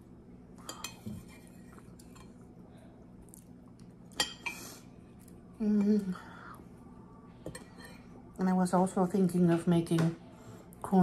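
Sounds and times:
quiet chewing: 0:00.9 - 0:04.2.

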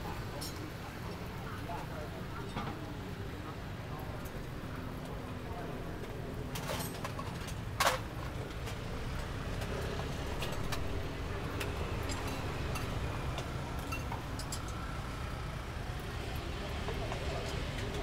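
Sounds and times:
low rumble of street stall: 0:00.0 - 0:18.0.

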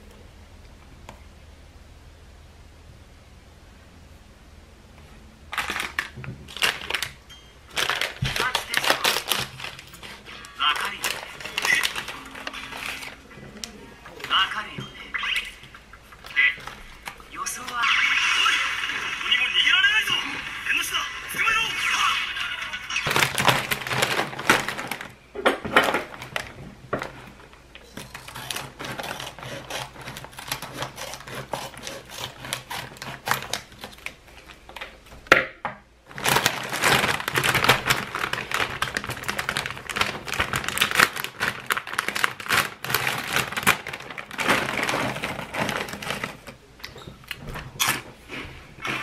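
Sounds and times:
plastic bag crinkling: 0:05.5 - 0:17.8, 0:20.8 - 0:34.8, 0:36.0 - 0:46.7
crackers crunching: 0:05.5 - 0:35.0, 0:36.0 - 0:49.0.

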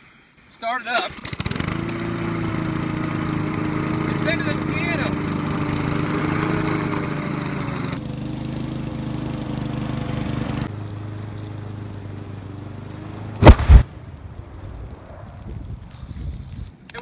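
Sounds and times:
lawn mower engine running: 0:01.0 - 0:14.6.

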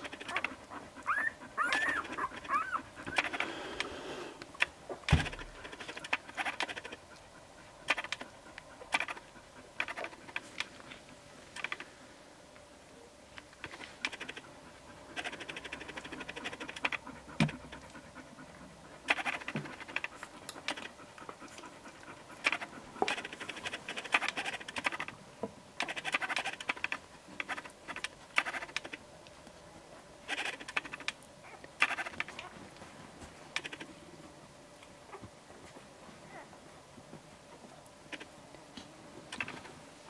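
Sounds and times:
dog panting: 0:00.0 - 0:03.6, 0:05.6 - 0:11.0, 0:13.7 - 0:25.1.

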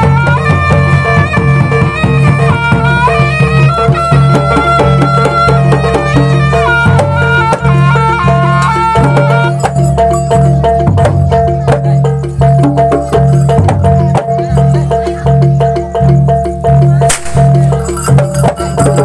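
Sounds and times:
drums: 0:00.0 - 0:19.0
fast metallophone pattern: 0:00.0 - 0:19.0
sustained melody line: 0:12.9 - 0:19.0.

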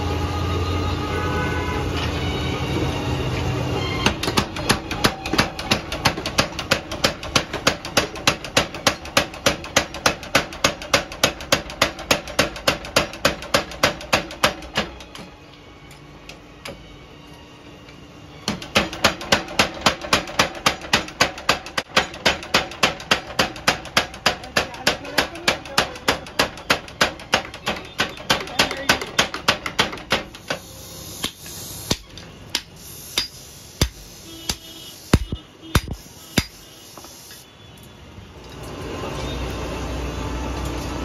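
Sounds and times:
power hammer pounding metal: 0:04.0 - 0:15.0, 0:18.5 - 0:30.6, 0:31.2 - 0:36.6.

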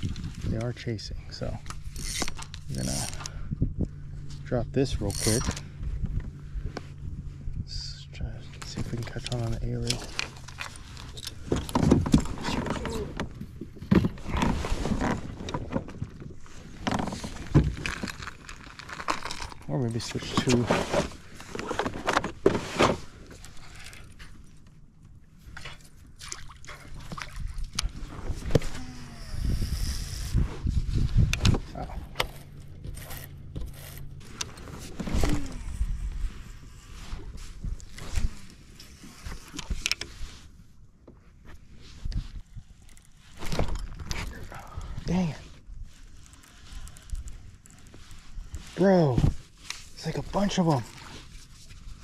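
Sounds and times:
fishing gear knocking and rustling: 0:01.5 - 0:06.4, 0:08.6 - 0:28.8, 0:30.1 - 0:36.1, 0:41.0 - 0:45.1, 0:46.0 - 0:52.0.

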